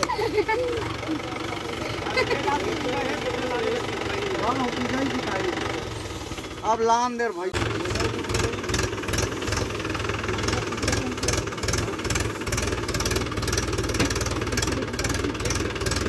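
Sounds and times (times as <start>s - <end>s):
tractor engine chugging: 0.0s - 16.0s.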